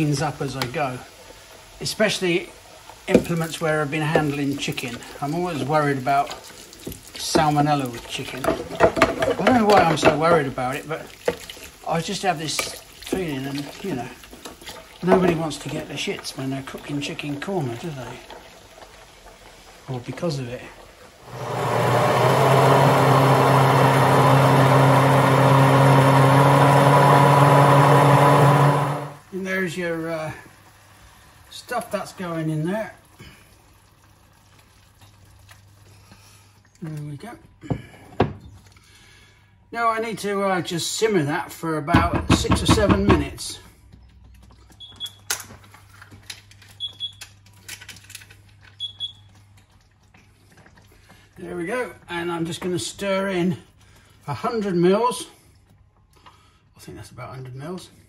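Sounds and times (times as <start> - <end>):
electric stick blender running: 21.2 - 29.2.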